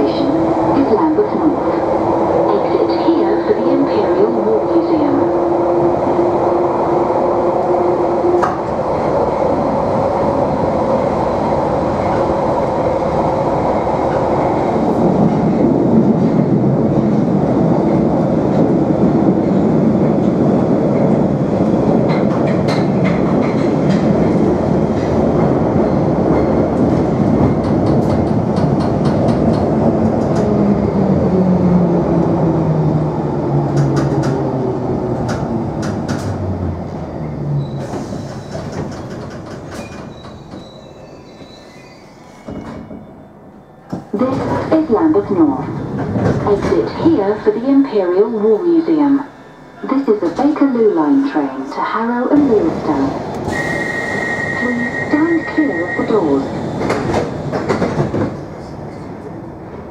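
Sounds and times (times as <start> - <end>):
train rumbling through tunnel: 0.0 - 59.9
rail-joint clicks: 22.0 - 24.2, 26.3 - 30.5, 33.7 - 34.4, 35.2 - 36.4, 37.6 - 41.8, 56.8 - 59.2.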